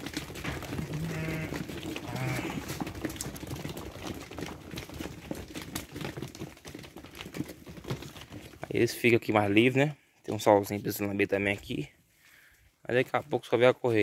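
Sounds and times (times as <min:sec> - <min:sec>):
hooves scuffling: 0:00.0 - 0:14.0
sheep bleating: 0:00.8 - 0:02.7.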